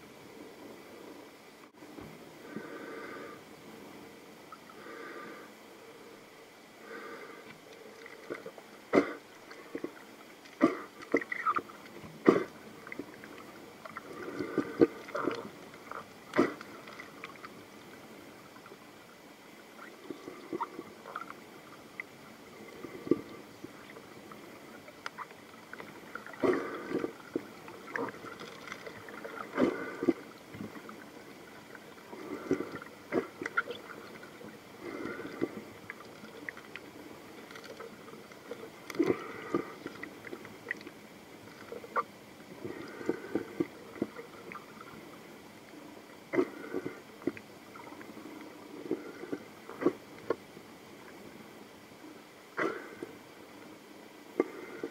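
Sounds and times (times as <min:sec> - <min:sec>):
faint underwater hiss: 0:00.0 - 0:54.9
underwater clicks and gurgles: 0:00.0 - 0:54.9.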